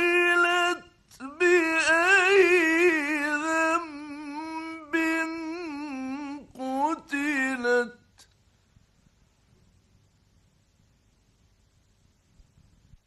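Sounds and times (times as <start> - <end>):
man reciting melodically: 0.0 - 8.3.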